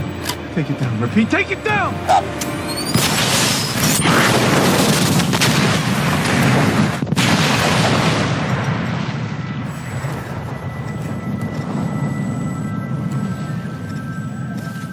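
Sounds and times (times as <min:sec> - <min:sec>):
sharp blasts: 0:02.9 - 0:10.8
explosions rumbling: 0:02.9 - 0:14.4.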